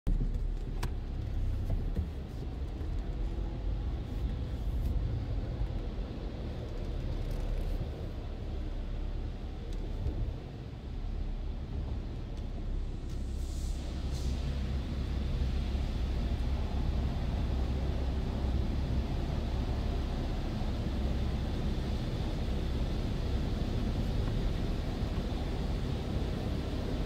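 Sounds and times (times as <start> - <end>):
car engine rumble inside cabin: 0.1 - 27.0
car wash machinery: 0.2 - 27.0.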